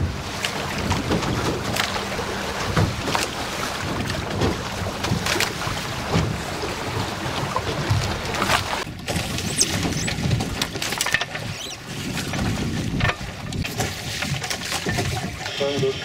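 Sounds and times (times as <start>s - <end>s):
water rushing along hulls: 0.0s - 16.0s
water splashes: 0.0s - 16.0s
wind noise on microphone: 7.7s - 16.0s.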